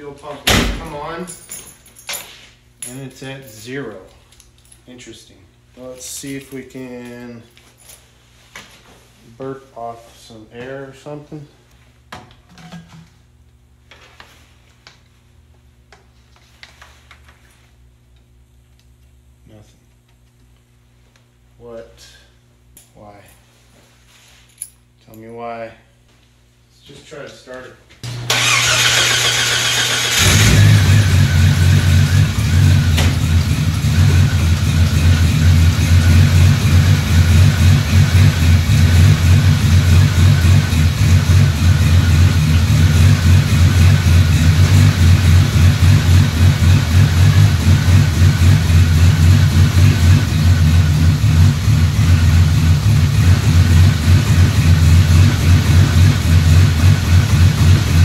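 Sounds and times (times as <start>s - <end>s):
engine starter cranking: 28.1s - 31.6s.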